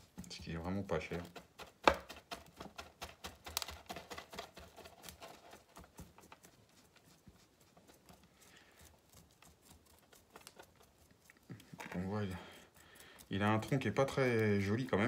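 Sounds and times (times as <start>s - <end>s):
chopstick scratching soil: 0.0s - 15.0s.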